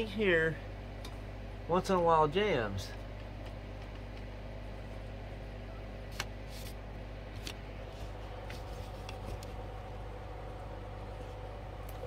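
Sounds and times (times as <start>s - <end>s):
record player motor hum: 0.0s - 12.0s.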